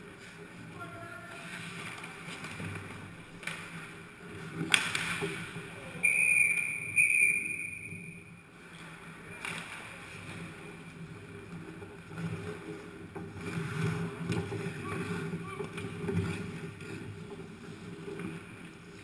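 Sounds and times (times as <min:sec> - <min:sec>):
skates and sticks scraping ice: 0:00.0 - 0:19.0
stick striking puck: 0:04.5 - 0:05.6
referee's whistle blasts: 0:06.0 - 0:08.2.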